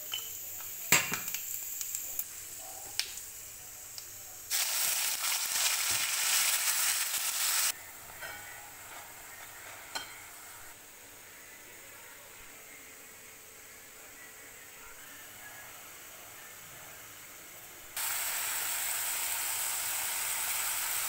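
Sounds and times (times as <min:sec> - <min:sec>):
food sizzling in hot oil: 0:00.0 - 0:07.8, 0:18.0 - 0:21.0
paste frying loudly in oil: 0:00.0 - 0:07.8, 0:18.0 - 0:21.0.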